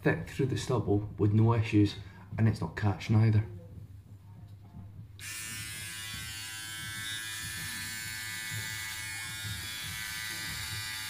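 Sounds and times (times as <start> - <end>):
electric shaver buzzing: 5.2 - 11.0.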